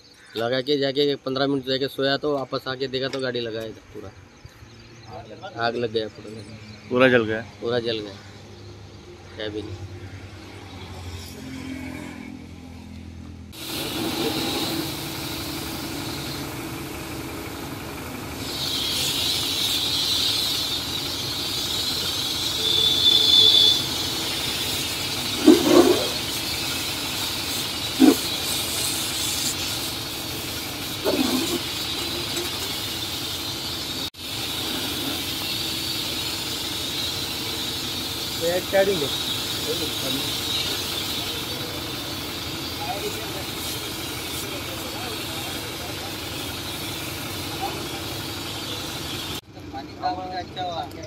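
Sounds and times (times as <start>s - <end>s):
low engine hum: 13.2s - 23.0s
hose spraying water: 13.6s - 49.4s.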